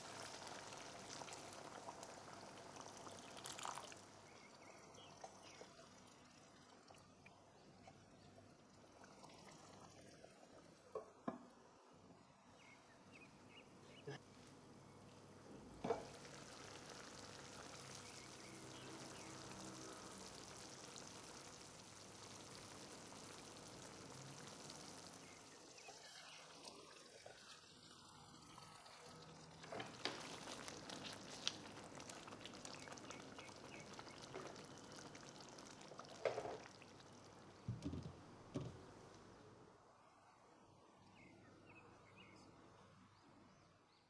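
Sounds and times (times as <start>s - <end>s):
curry bubbling and sizzling: 0.0s - 11.2s, 15.8s - 39.3s
crackles: 29.4s - 37.6s.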